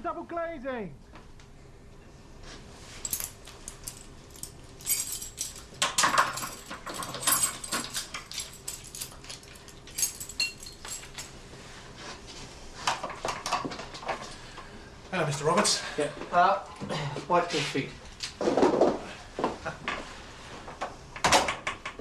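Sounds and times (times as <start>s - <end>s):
keys jangling: 3.0s - 11.4s.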